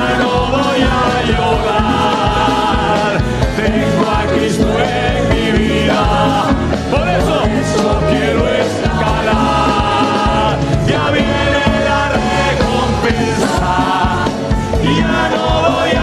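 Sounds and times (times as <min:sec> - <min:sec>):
group singing worship chorus: 0:00.0 - 0:16.0
live band with drums: 0:00.0 - 0:16.0.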